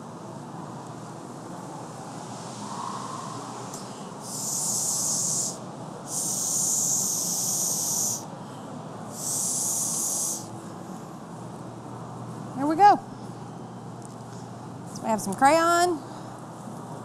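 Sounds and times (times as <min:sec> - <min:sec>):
blow pen hissing puffs: 0:04.2 - 0:08.3, 0:09.1 - 0:10.5.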